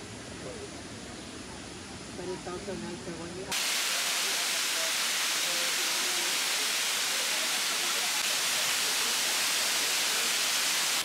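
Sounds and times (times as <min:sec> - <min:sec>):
waterfall rushing: 0:03.5 - 0:11.0.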